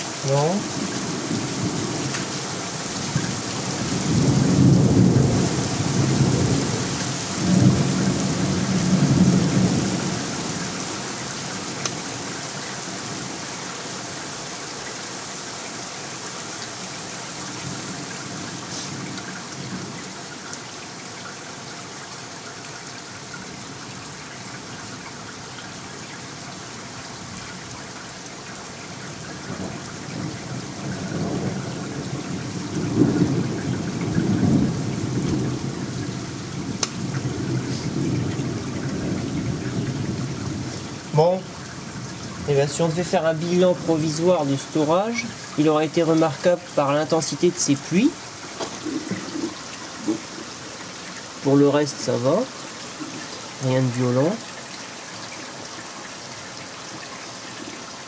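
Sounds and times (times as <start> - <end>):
rain falling: 0.0 - 58.0
rolling thunder: 0.7 - 11.0, 29.2 - 40.8, 48.5 - 50.6.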